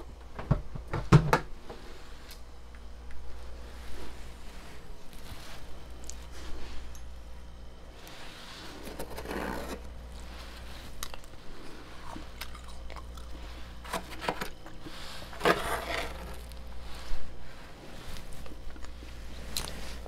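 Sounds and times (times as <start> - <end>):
freezer frost crunching: 8.0 - 20.0.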